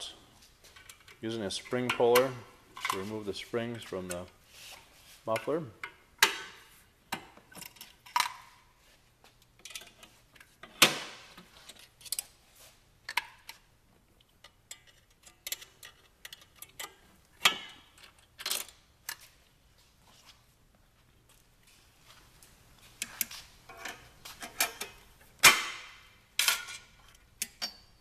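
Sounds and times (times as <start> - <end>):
metal springs clicking and snapping: 14.3 - 19.2.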